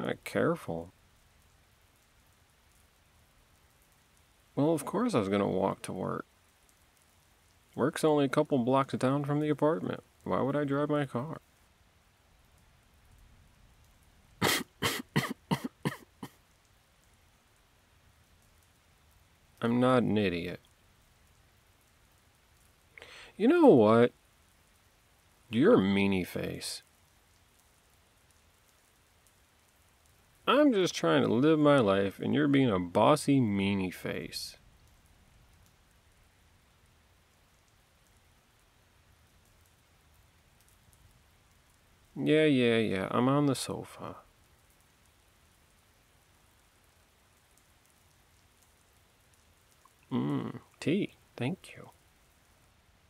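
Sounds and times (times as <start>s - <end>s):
soft hiss of falling rain: 0.0s - 53.0s
man coughing: 14.4s - 16.4s.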